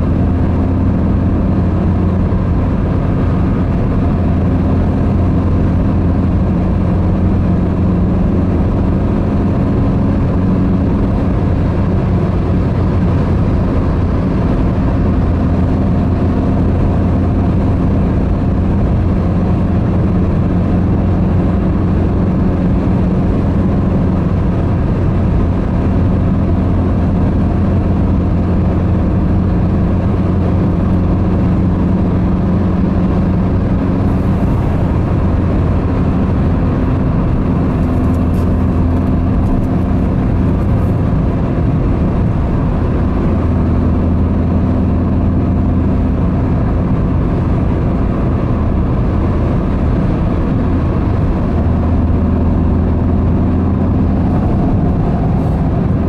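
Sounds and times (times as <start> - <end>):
car engine drone: 0.0 - 56.0
tyre and wind noise: 0.0 - 56.0.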